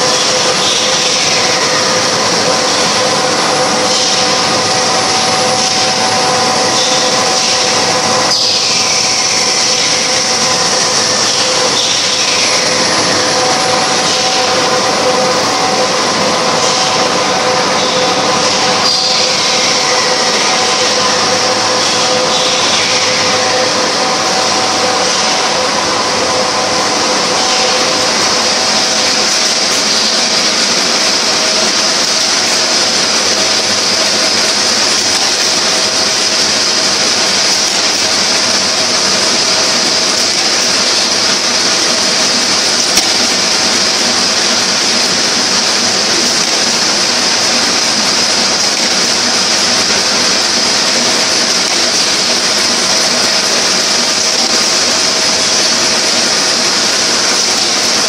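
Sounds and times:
production line mechanical hum: 0.0s - 58.0s.

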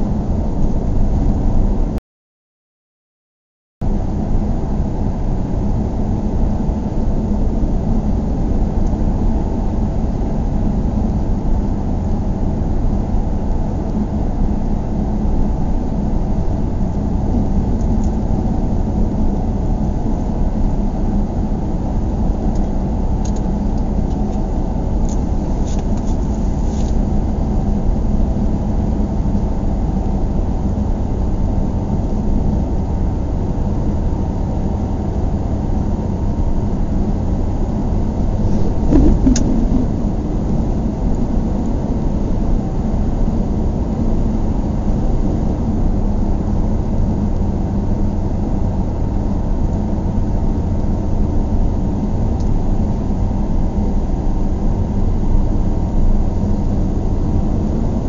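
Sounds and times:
car driving cabin rumble: 38.0s - 42.3s.

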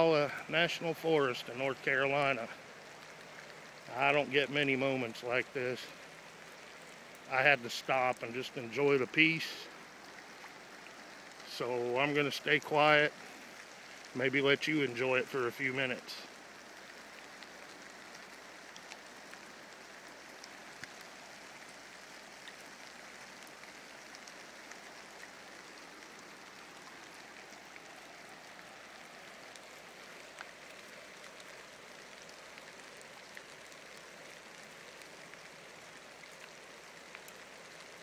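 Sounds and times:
faint ticks: 16.3s - 38.0s.

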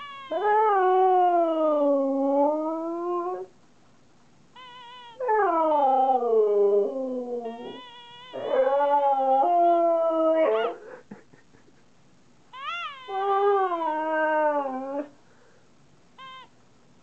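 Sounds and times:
husky howling: 5.1s - 10.8s.

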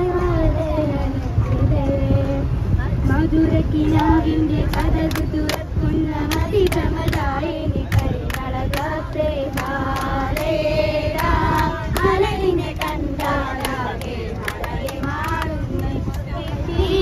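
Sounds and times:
bus engine rumble: 0.0s - 17.0s
group singing together: 3.6s - 17.0s
people clapping along: 4.0s - 17.0s.

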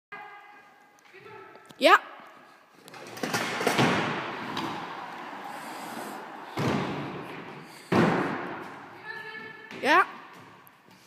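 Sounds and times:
scooter wheels rolling: 2.8s - 9.0s
scooter thuds: 6.5s - 8.8s.

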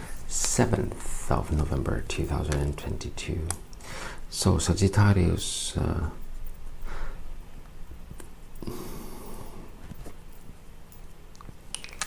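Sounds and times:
person breathing: 3.8s - 4.3s, 6.8s - 7.3s, 8.6s - 9.9s.

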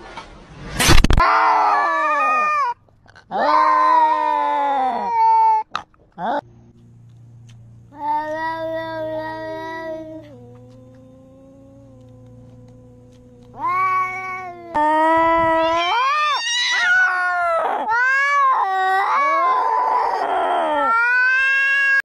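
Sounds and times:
cats yowling: 1.2s - 6.4s, 7.9s - 22.0s
quiet low tone: 6.4s - 13.6s.

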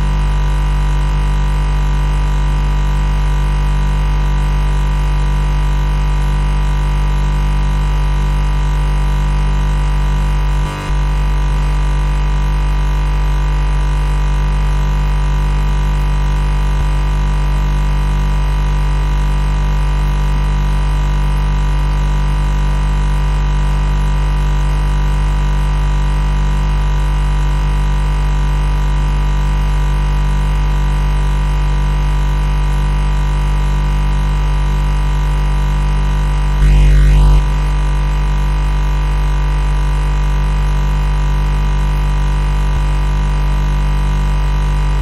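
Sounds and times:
refrigerator compressor humming: 0.0s - 27.7s.

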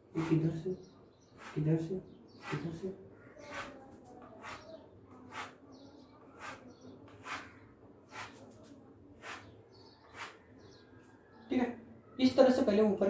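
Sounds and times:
spatula scraping wet paint: 5.3s - 5.6s, 6.4s - 8.6s.

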